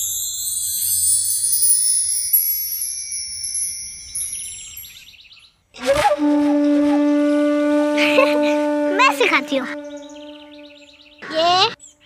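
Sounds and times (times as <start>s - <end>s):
shimmering chime-like notes: 0.0s - 5.3s
held horn-like wind note: 5.8s - 11.4s.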